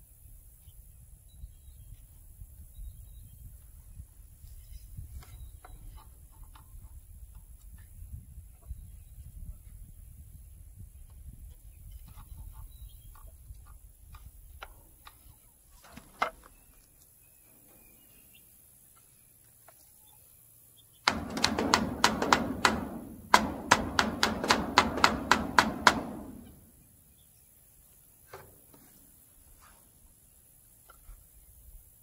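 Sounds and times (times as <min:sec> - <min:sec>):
hammer striking nails into wood: 0:21.1 - 0:26.8.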